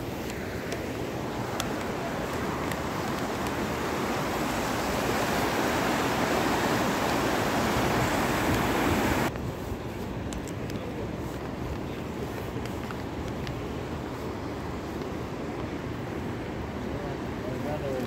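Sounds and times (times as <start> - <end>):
river rushing over stones: 0.0 - 9.4.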